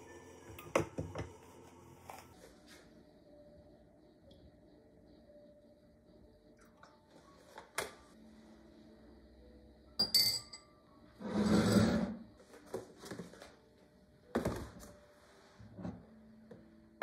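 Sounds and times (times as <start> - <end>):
scrape on counter: 11.2 - 12.2.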